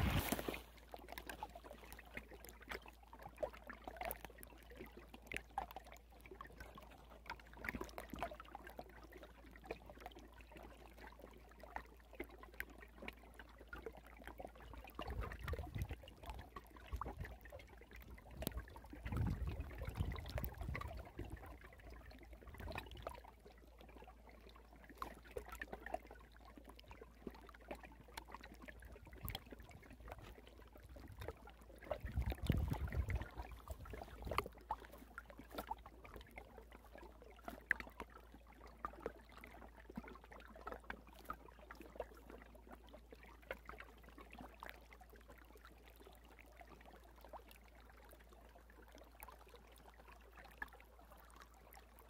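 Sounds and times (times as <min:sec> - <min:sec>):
low water wash: 0:00.0 - 0:02.7, 0:14.8 - 0:43.8
water trickling and lapping: 0:00.0 - 0:52.0.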